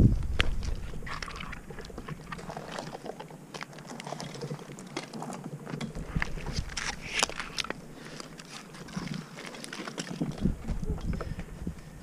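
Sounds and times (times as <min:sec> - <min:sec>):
wind rumble on microphone: 0:00.0 - 0:02.4, 0:05.9 - 0:07.5, 0:10.2 - 0:12.0
gloved hands scraping tree bark: 0:03.6 - 0:10.0.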